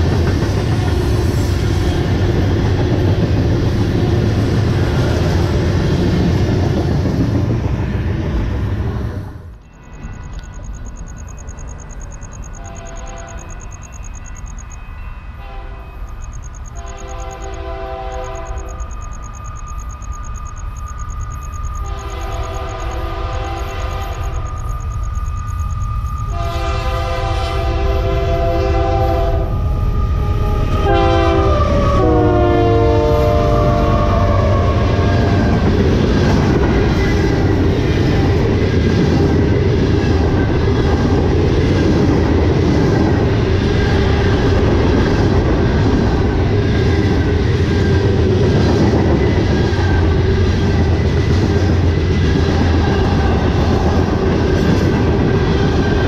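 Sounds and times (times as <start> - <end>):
freight cars rumbling and clattering: 0.0 - 9.6, 35.1 - 56.0
locomotive air horn blasts: 12.5 - 13.6, 15.4 - 16.1, 16.8 - 18.9, 21.8 - 24.5, 26.3 - 35.6.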